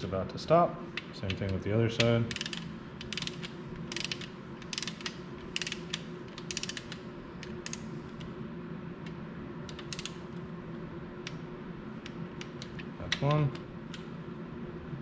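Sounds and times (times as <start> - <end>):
torque wrench ratcheting clicks: 2.0 - 7.0, 9.7 - 10.2.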